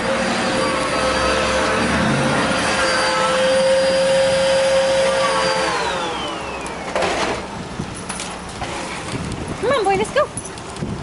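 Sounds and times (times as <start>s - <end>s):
vacuum cleaner motor whine: 0.0s - 7.5s.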